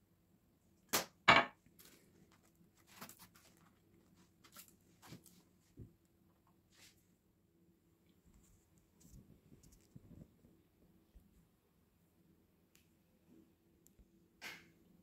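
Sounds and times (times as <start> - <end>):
soft rustles and taps: 1.8 - 7.0, 8.1 - 11.4.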